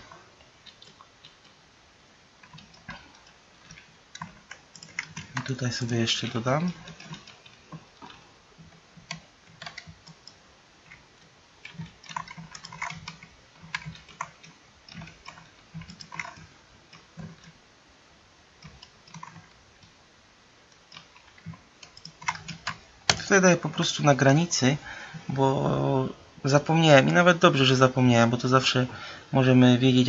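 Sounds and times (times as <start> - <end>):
keyboard typing: 0.0 - 1.6, 2.4 - 17.6, 18.6 - 20.0, 20.7 - 24.0
mouse clicking: 0.1 - 1.6, 2.4 - 11.0, 11.6 - 17.6, 18.6 - 20.0, 20.7 - 23.3.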